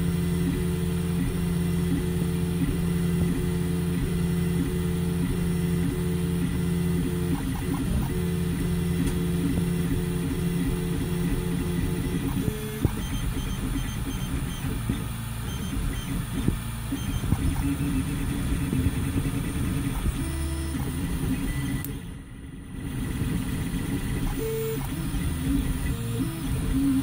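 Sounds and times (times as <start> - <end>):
stepper motors whining: 6.4 - 27.0.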